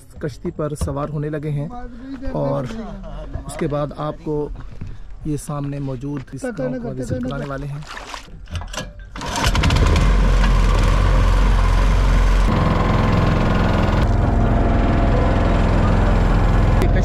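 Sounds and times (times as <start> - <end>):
small boat engine running: 9.2 - 17.0.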